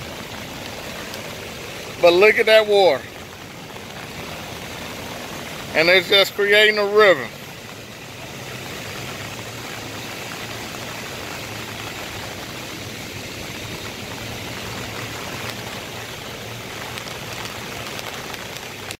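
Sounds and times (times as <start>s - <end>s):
flood water rushing through a ditch: 0.0s - 19.0s
rain falling: 0.0s - 19.0s.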